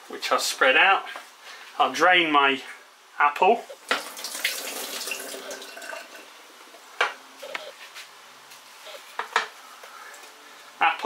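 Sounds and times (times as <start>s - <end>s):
water draining into a sink: 3.9s - 6.3s.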